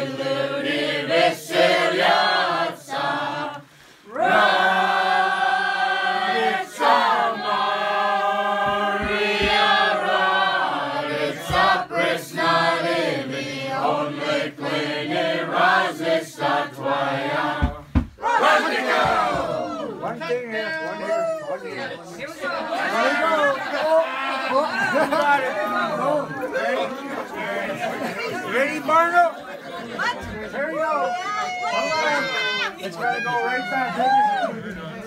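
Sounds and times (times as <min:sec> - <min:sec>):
group of voices singing a carol: 0:00.0 - 0:19.7.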